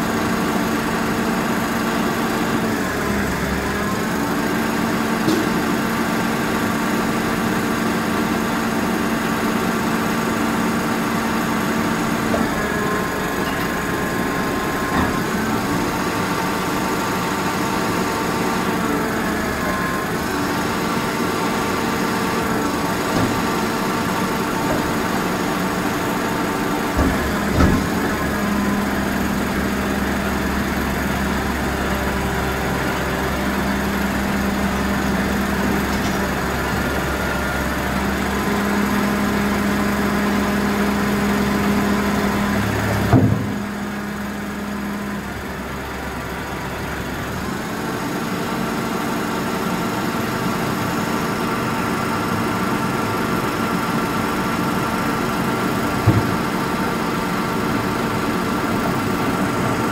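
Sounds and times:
diesel engine idling: 0.0 - 59.9
bins knocking: 56.0 - 56.6.

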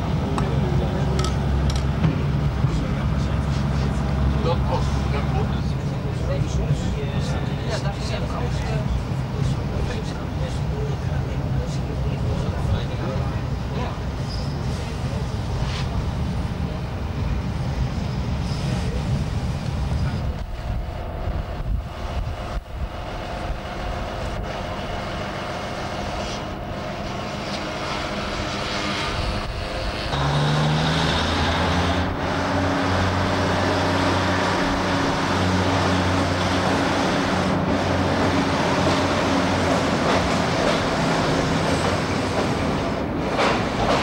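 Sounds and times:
train running rumble: 0.0 - 44.0
diesel engine droning: 18.7 - 41.9.

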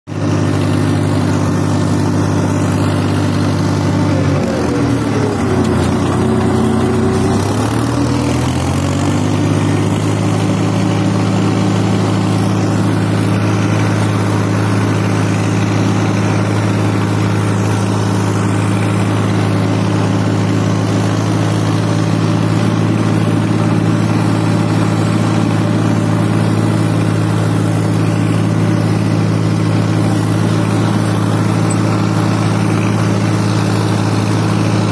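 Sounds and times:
tractor diesel engine under load: 0.1 - 34.9.

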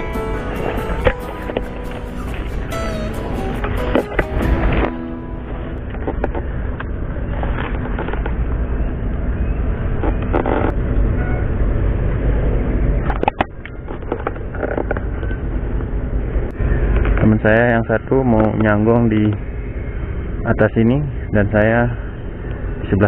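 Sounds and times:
branches rustling: 0.0 - 8.8.

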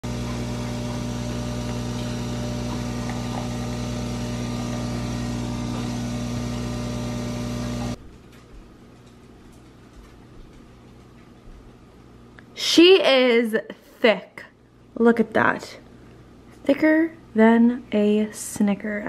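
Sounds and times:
coffee machine humming: 0.0 - 8.0.

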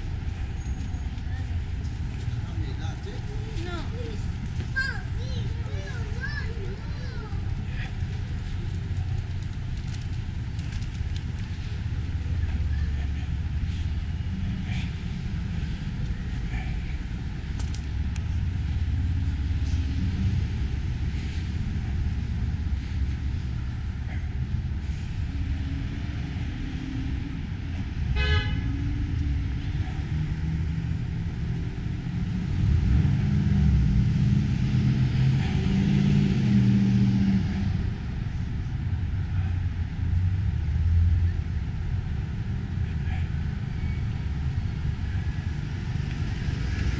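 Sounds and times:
cars driving past: 0.0 - 46.9
car horn toot: 28.2 - 28.6.

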